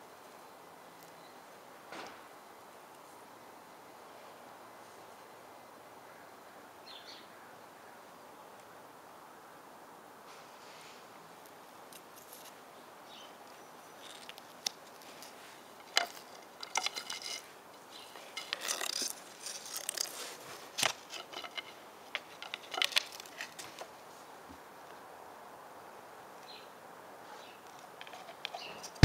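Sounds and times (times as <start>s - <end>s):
wooden stick scraping on wood: 14.0s - 23.9s, 28.0s - 29.0s.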